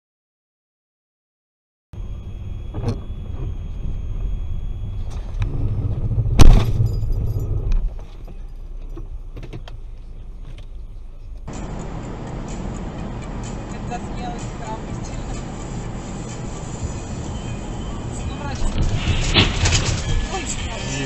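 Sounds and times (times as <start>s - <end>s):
car road and engine rumble: 2.0s - 21.0s
loud collision bang: 6.3s - 7.3s, 18.7s - 20.8s.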